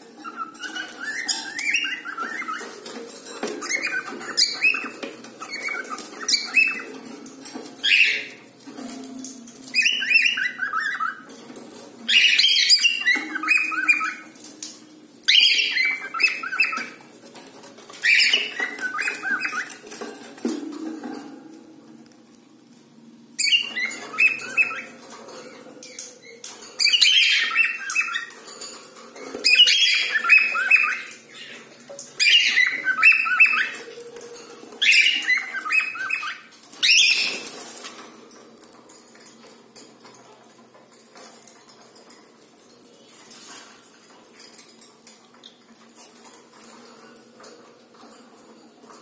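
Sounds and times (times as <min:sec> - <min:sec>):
cockatiels chirping and squawking: 0:00.0 - 0:20.3, 0:23.4 - 0:42.2.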